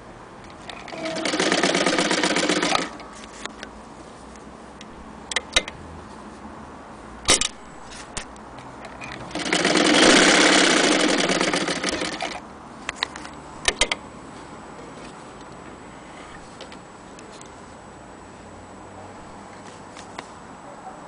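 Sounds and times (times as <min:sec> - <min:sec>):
sewing machine needle rattle: 0:00.8 - 0:03.0.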